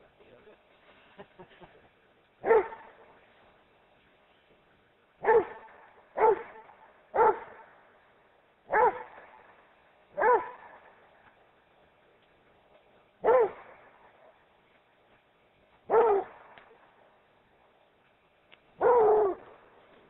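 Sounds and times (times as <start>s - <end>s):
dog barking: 2.4s - 3.1s, 5.2s - 7.8s, 8.7s - 9.4s, 10.2s - 11.0s, 13.2s - 14.4s, 15.9s - 16.7s, 18.8s - 19.5s.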